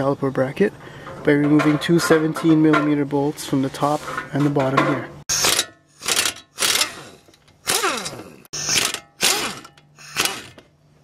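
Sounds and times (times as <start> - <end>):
air ratchet whirring: 5.3 - 10.7.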